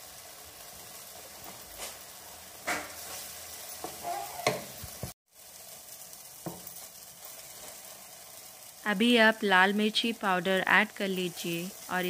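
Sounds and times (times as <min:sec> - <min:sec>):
vegetables sizzling in a frying pan: 0:00.0 - 0:12.0
spatula scraping and knocking pan: 0:02.6 - 0:05.2, 0:06.4 - 0:07.9.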